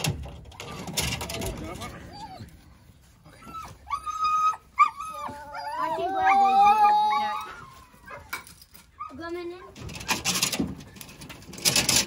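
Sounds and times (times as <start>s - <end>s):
dog whining: 1.8s - 2.5s, 3.3s - 8.2s
dogs howling: 3.4s - 8.3s.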